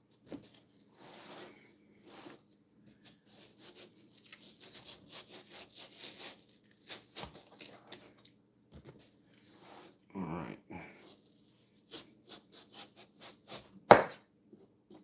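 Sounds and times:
knife scraping watermelon rind: 0:02.2 - 0:08.2, 0:11.0 - 0:13.8.

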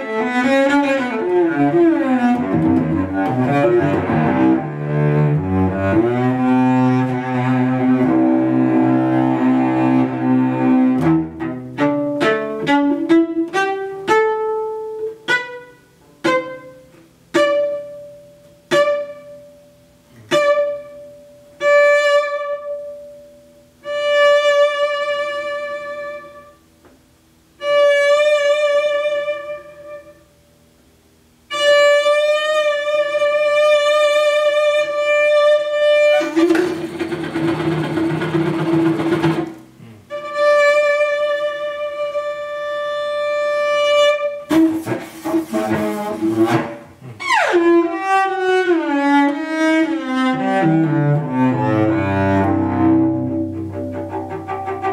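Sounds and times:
scratchy cello noise: 0:00.0 - 0:19.4, 0:31.5 - 0:54.9
solo cello playing: 0:00.0 - 0:26.7, 0:27.5 - 0:30.4, 0:31.4 - 0:54.9.

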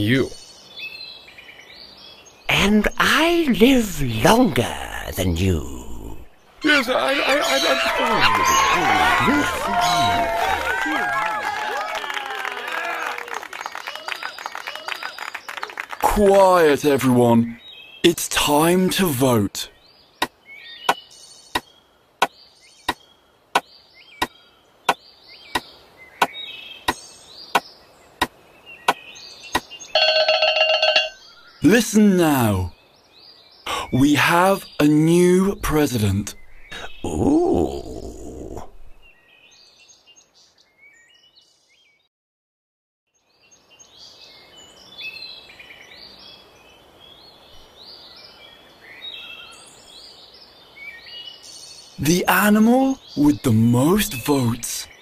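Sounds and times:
small birds chirping: 0:00.0 - 0:11.5, 0:13.4 - 0:30.0, 0:31.1 - 0:42.1, 0:43.2 - 0:55.0
faint bird-like chirps: 0:31.1 - 0:42.0.

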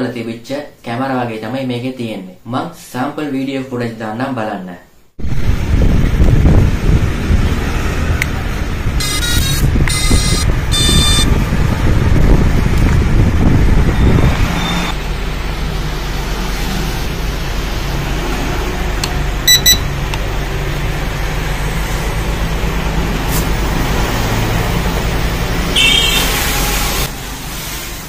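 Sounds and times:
wind buffeting microphone: 0:05.2 - 0:15.0
high-pitched whir: 0:09.0 - 0:11.3
remote controller beeps: 0:09.0 - 0:11.3, 0:19.5 - 0:19.9.

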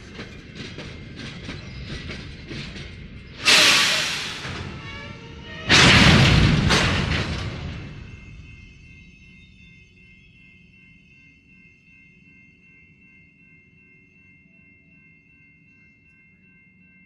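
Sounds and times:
train cars clanking: 0:00.0 - 0:10.7
loud air brake bursts: 0:03.4 - 0:04.8.

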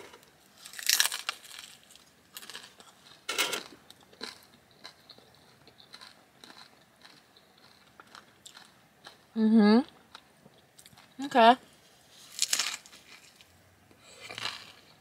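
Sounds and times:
taco shell crunching: 0:00.2 - 0:09.2, 0:12.1 - 0:13.5, 0:14.3 - 0:14.9
chewing: 0:03.9 - 0:09.2.

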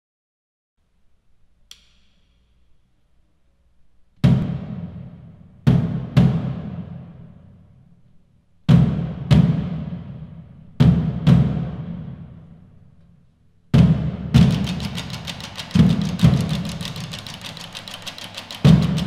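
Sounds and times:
light click: 0:01.7 - 0:02.4
loud drum strokes: 0:04.2 - 0:07.8, 0:08.7 - 0:12.8, 0:13.7 - 0:19.0.

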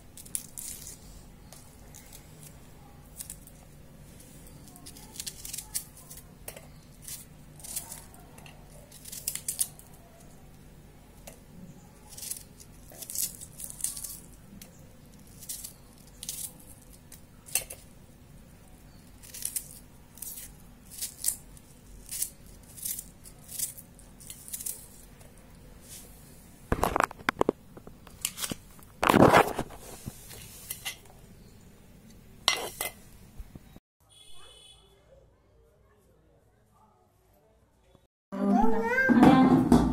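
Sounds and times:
knife scraping garlic skin: 0:00.2 - 0:03.6, 0:04.2 - 0:10.0, 0:12.0 - 0:17.9, 0:18.9 - 0:25.2, 0:28.2 - 0:31.1.

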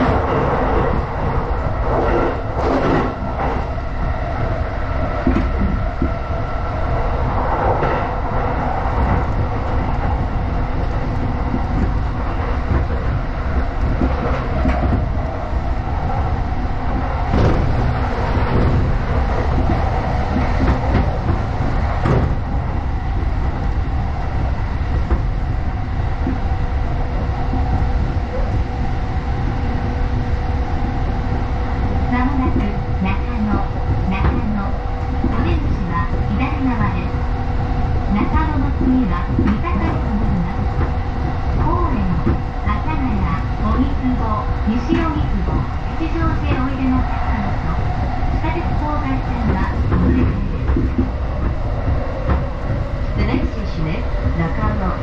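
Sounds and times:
train hum: 0:00.0 - 0:55.0
train wheels rumbling on rail: 0:00.0 - 0:55.0
clacks over rail joints: 0:16.9 - 0:22.4, 0:39.1 - 0:42.5, 0:48.6 - 0:53.5.

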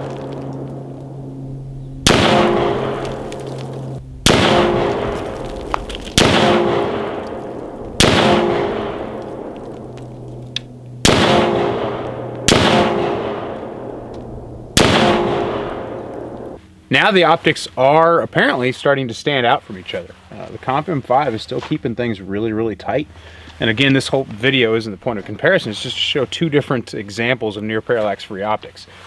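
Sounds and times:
rifle shots with ringing echo: 0:02.0 - 0:16.6.

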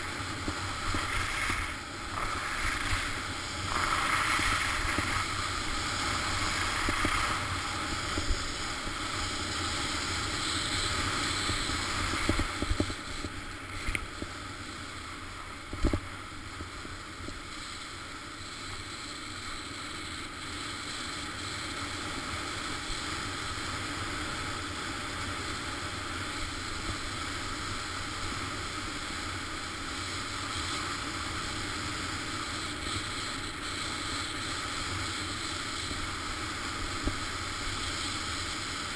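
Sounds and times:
skis sliding over snow: 0:00.0 - 0:20.1.

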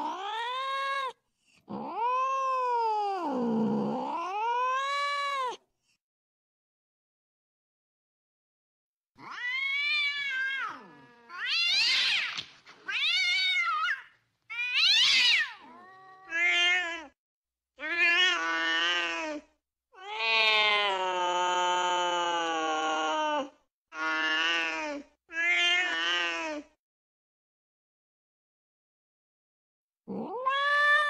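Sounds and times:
cats yowling: 0:00.0 - 0:05.6, 0:09.2 - 0:17.2, 0:20.0 - 0:23.4, 0:30.1 - 0:31.0.

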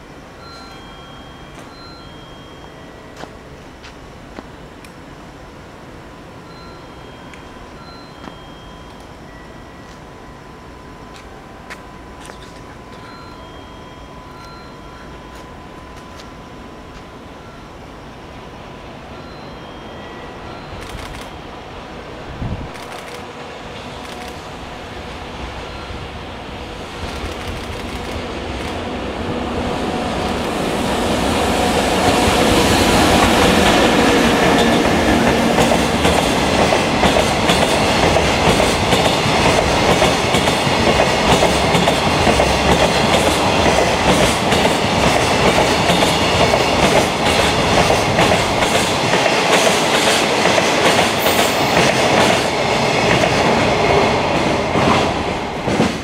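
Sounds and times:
electric locomotive passing: 0:00.0 - 0:56.0
wheels clacking over rail joints: 0:30.2 - 0:56.0.

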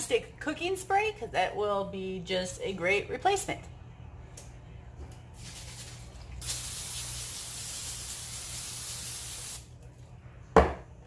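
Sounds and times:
aerosol spray hissing: 0:06.4 - 0:09.6.

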